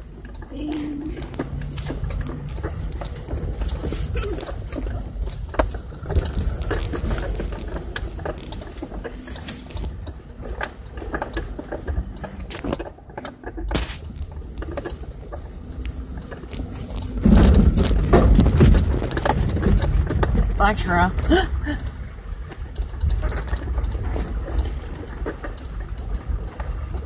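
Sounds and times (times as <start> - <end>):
low engine rumble: 0.0 - 27.0
vehicle body knocks and rattles: 16.2 - 27.0.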